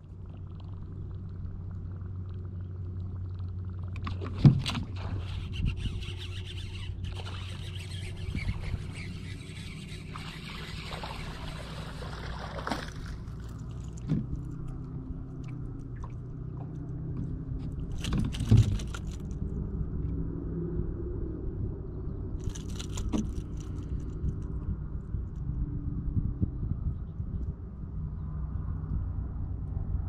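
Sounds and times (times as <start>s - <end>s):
low hum: 0.0s - 30.0s
water splashing: 6.2s - 14.6s.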